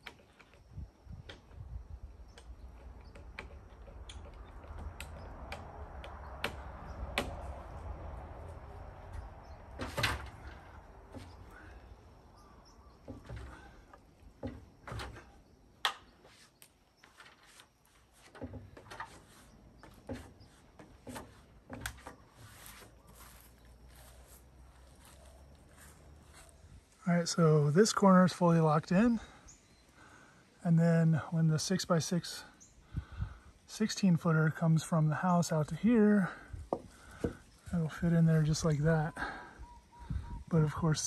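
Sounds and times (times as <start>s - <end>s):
timber and hardware clunking: 9.0s - 11.8s, 12.9s - 23.3s, 36.7s - 37.5s.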